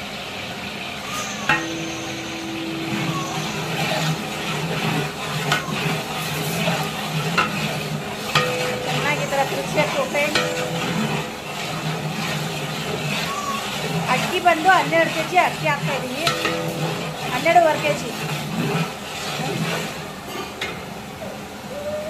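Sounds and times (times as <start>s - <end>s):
onions sizzling in hot oil: 0.0s - 20.9s
ladle knocking against metal pot: 1.5s - 18.8s.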